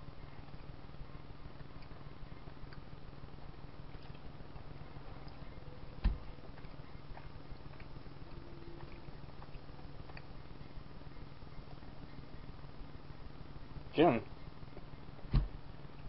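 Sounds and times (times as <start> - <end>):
steady low hum: 0.0 - 16.0
dull thump: 6.0 - 6.3, 15.3 - 15.6.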